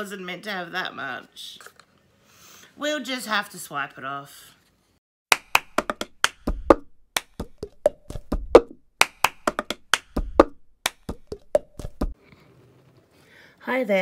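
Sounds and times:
knocking clicks rhythm: 5.3s - 12.2s.

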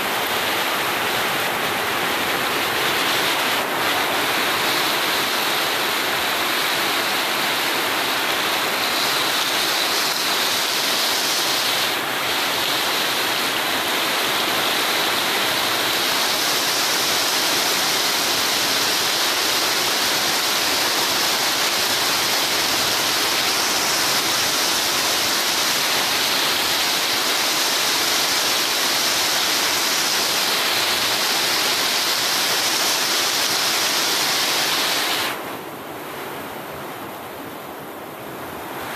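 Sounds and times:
heavy rain pouring on street: 0.0s - 38.9s.

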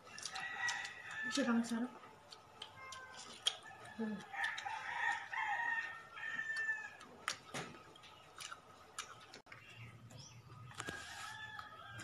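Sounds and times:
rooster crowing: 0.1s - 1.5s, 3.6s - 7.0s, 10.8s - 12.0s.

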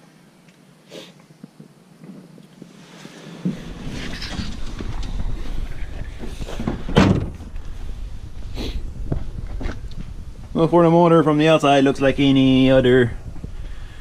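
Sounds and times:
shuffling and handling noise: 1.4s - 10.7s
low rumble: 3.7s - 14.0s
truck door shutting: 6.5s - 7.5s.

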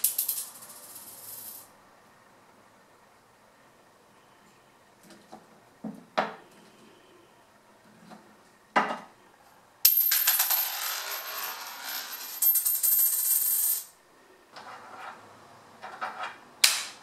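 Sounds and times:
coin clattering on hard floor: 0.0s - 1.7s, 9.8s - 14.0s.

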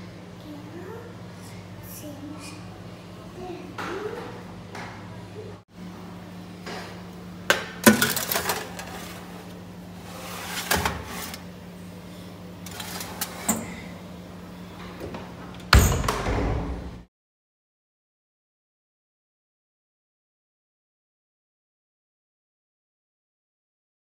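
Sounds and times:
metal tray clanking on rack: 7.8s - 9.2s
oven door banging shut: 15.7s - 17.0s.

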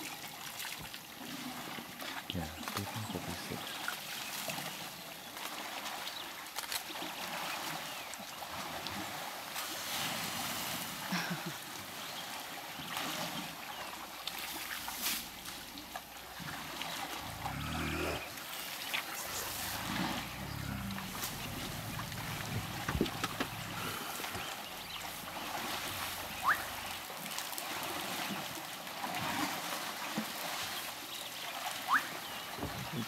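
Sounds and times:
water sloshing and trickling: 0.0s - 33.0s
water splashes: 0.0s - 33.0s
elephant low rumbles: 15.4s - 27.3s.

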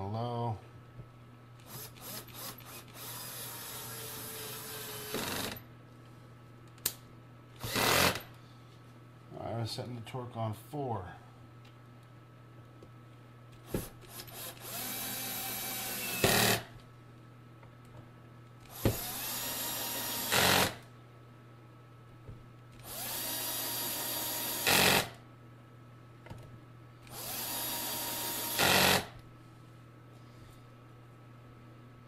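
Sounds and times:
cordless drill driving screws: 1.6s - 5.6s, 7.6s - 8.2s, 13.8s - 16.7s, 18.7s - 20.8s, 22.8s - 25.2s, 27.1s - 29.1s.

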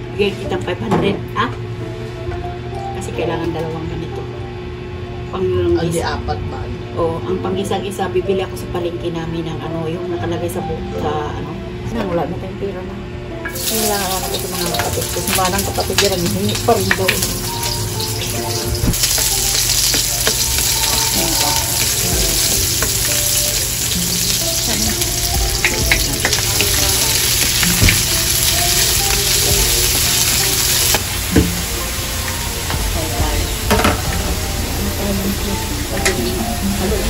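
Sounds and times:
onions sizzling in hot oil: 13.5s - 34.0s.

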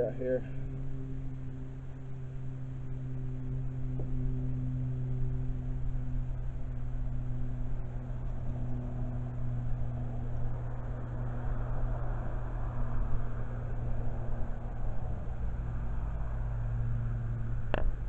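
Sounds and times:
low mechanical hum: 0.0s - 18.0s
weak steady tones: 0.0s - 18.0s.

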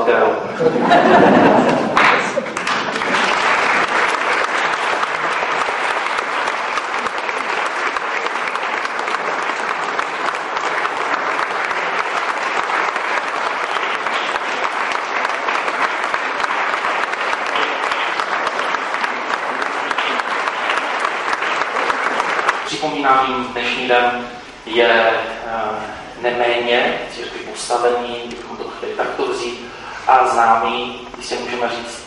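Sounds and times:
crowd applauding: 0.8s - 24.9s.

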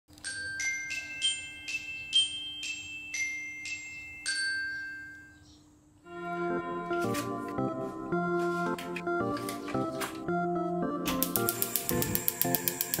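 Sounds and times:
bell-like melody: 0.2s - 5.5s
music with held notes: 6.0s - 13.0s.

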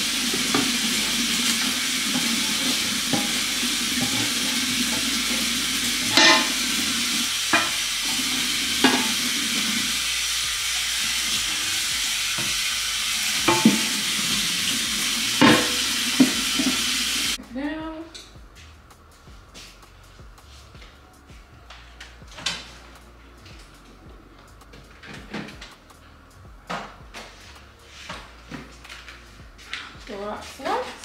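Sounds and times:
dish brush scrubbing pan: 0.0s - 17.4s
tap water running into sink: 0.0s - 17.4s
dishes knocking against sink: 6.1s - 6.6s.

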